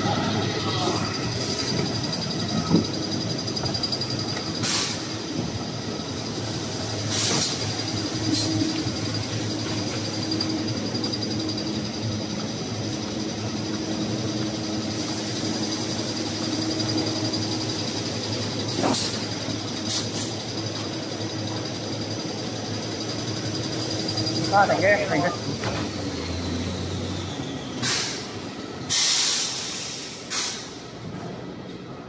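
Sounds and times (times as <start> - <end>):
high steady machine tones: 0.0 - 29.0
machine rollers and belts din: 0.0 - 30.1
short hissing bursts: 6.3 - 8.7, 28.9 - 30.8.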